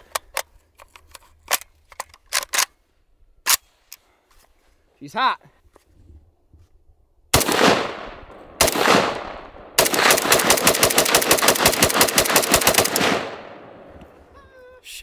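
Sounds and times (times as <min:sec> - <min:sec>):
rapid rifle fire: 0:07.3 - 0:13.8
rifle shots with ringing echo: 0:07.3 - 0:14.1.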